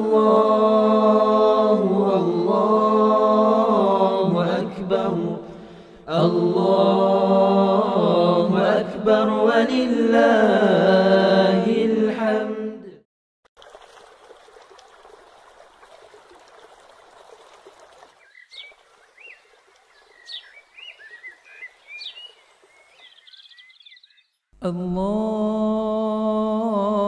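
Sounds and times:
small birds chirping: 18.1 - 24.4.

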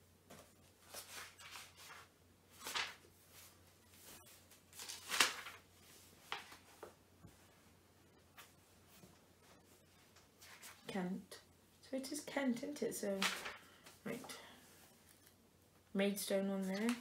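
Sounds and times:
book pages turning: 0.8 - 7.0, 16.6 - 17.0.

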